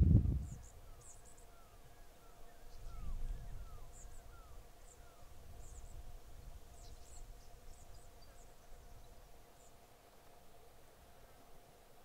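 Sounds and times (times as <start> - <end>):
low wind rumble: 0.0 - 9.5
faint steady drone: 0.0 - 12.0.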